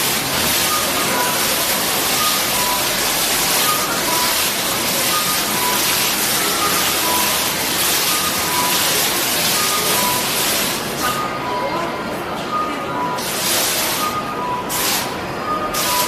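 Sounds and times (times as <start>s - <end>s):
water falling and splashing: 0.0s - 11.2s, 13.1s - 16.0s.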